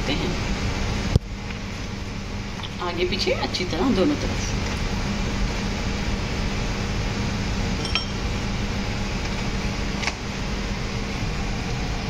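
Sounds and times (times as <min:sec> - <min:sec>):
steady background hum: 0:00.0 - 0:12.0
metal mesh sieve clinking: 0:07.8 - 0:08.2.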